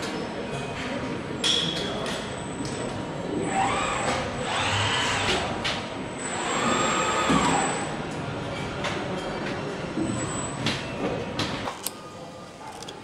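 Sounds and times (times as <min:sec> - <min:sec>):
robot arm servo motors whining: 0:03.4 - 0:05.5.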